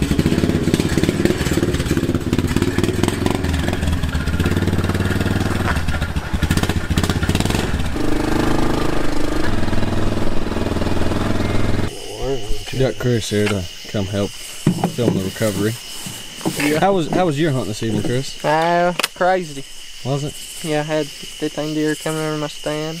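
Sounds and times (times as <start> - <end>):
quad bike engine running: 0.0 - 12.0.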